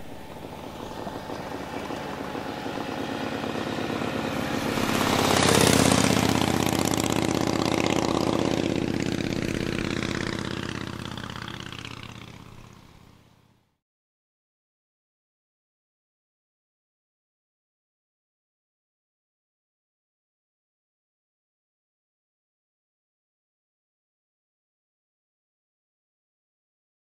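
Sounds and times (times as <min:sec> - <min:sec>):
motorcycle engine passing by: 0:00.0 - 0:13.8.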